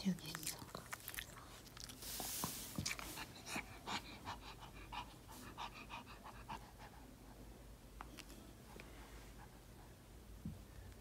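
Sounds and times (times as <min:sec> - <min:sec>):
dog panting: 0:00.6 - 0:07.4.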